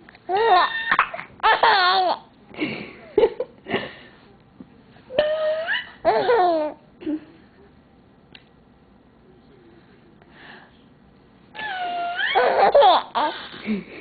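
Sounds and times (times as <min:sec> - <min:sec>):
baby laughing: 0:00.3 - 0:02.3, 0:05.2 - 0:06.8, 0:11.6 - 0:13.6.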